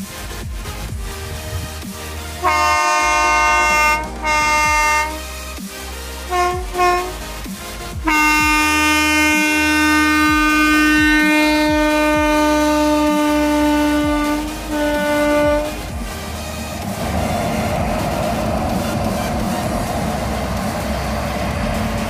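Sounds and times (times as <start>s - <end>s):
locomotive horn blasts: 2.4s - 5.3s, 6.2s - 16.6s
locomotives passing close by: 9.2s - 22.0s.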